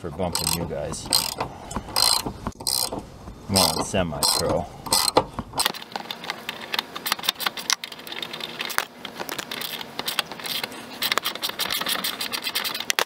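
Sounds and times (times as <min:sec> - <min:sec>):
socket ratchet clicking: 0:00.4 - 0:03.0, 0:03.6 - 0:05.8.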